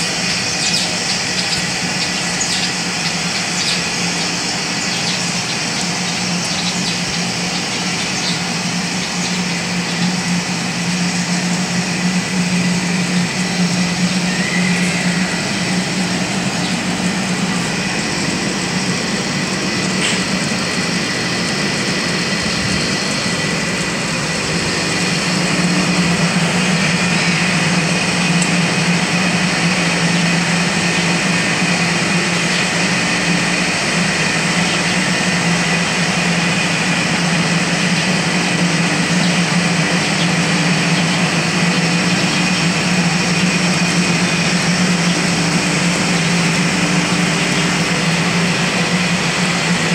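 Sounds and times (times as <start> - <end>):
motor droning and whining: 0.0 - 49.9.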